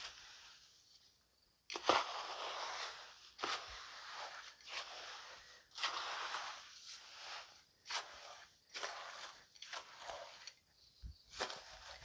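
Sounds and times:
tool scraping crushed charcoal: 0:00.0 - 0:00.7, 0:01.6 - 0:12.0.

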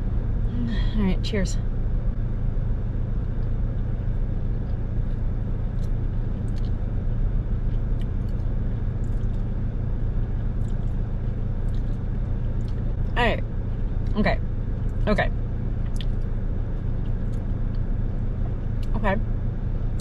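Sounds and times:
car engine idling inside cabin: 0:00.0 - 0:20.0
mouth clicks from chewing: 0:15.9 - 0:16.2.

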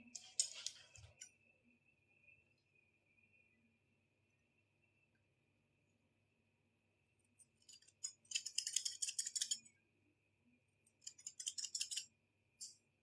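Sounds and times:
scissors snipping hair: 0:11.0 - 0:12.0.

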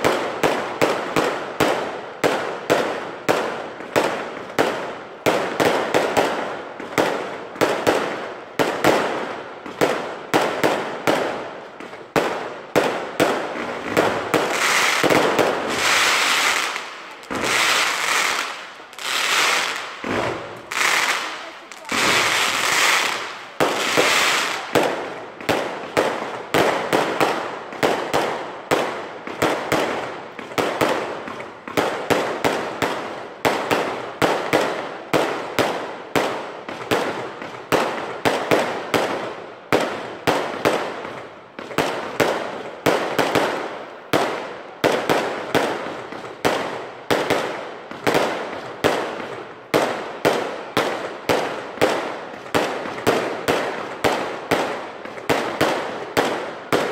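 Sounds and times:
fireworks banging with echo: 0:00.0 - 0:56.9.

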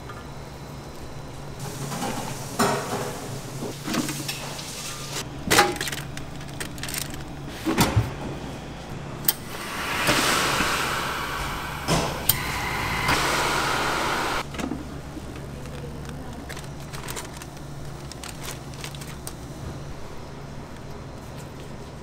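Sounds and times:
steam hissing: 0:09.3 - 0:14.4.

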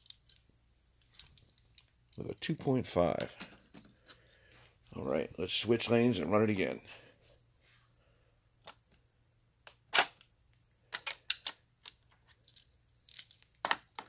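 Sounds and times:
toy cars clicking and tapping: 0:00.0 - 0:00.4.

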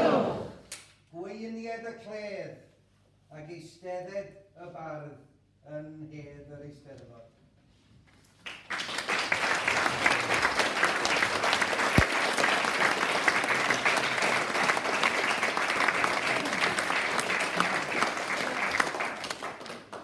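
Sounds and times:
audience applause: 0:08.4 - 0:20.0.

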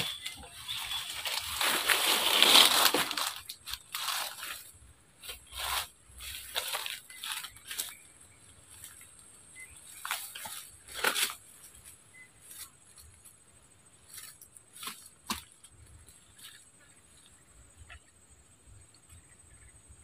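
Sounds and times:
footsteps crunching dry leaves: 0:00.0 - 0:13.2.

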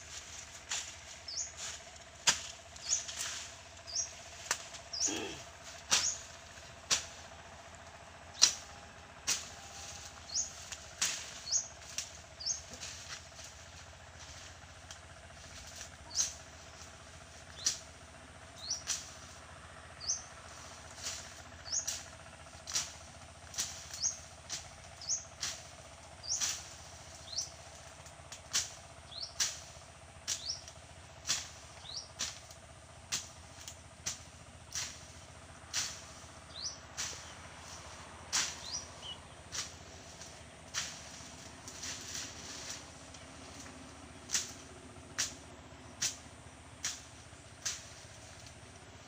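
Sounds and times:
hand blade chopping weeds: 0:00.1 - 0:06.3, 0:06.9 - 0:07.2, 0:08.4 - 0:13.6, 0:28.3 - 0:32.5, 0:33.1 - 0:42.9, 0:43.5 - 0:48.4.

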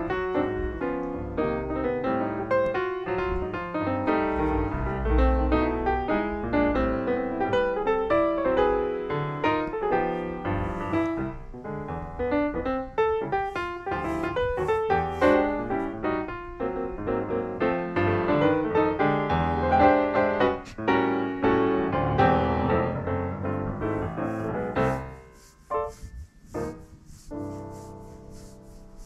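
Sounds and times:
calm piano music: 0:00.0 - 0:29.0.

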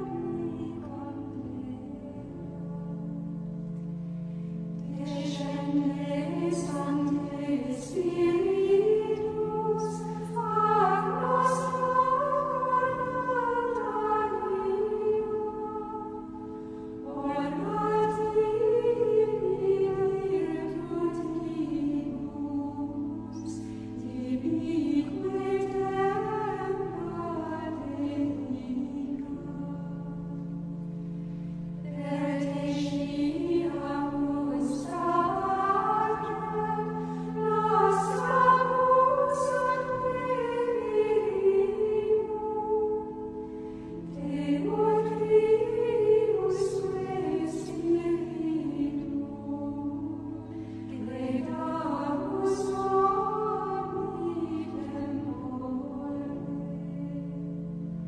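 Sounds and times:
women's choir chanting: 0:04.9 - 0:16.3, 0:17.0 - 0:30.2, 0:31.8 - 0:43.3, 0:44.1 - 0:57.3
singers breathing: 0:37.0 - 0:37.4.

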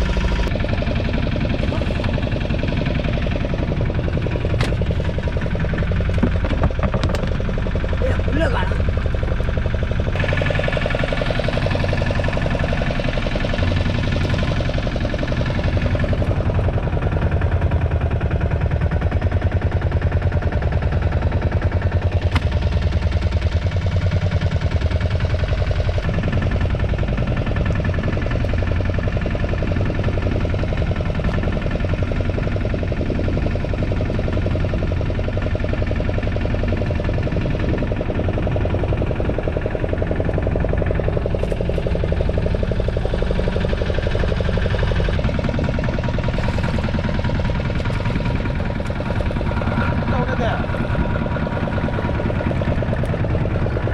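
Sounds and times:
boat engine running: 0:00.0 - 0:53.9.

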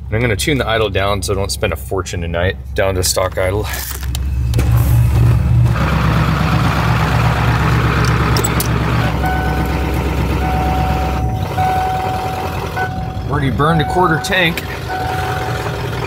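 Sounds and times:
diesel engine idling: 0:00.0 - 0:16.0
thin steady electronic tone: 0:09.2 - 0:15.8.

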